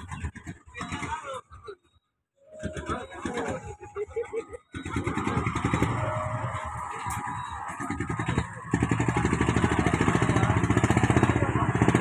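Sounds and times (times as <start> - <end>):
small boat engine puttering: 2.5 - 12.0.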